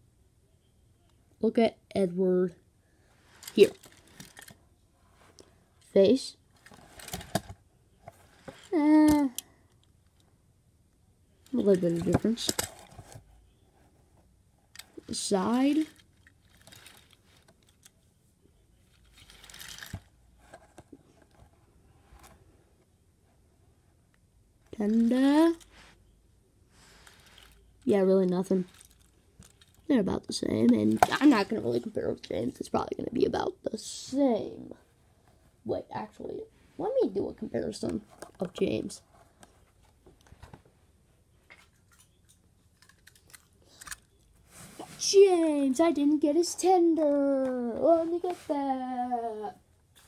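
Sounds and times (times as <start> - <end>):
box and toy clicks and rustles: 3.4 - 4.6, 6.6 - 9.4, 11.5 - 13.2, 14.8 - 18.0, 18.9 - 21.5, 24.8 - 25.7, 27.0 - 29.9, 42.1 - 44.3.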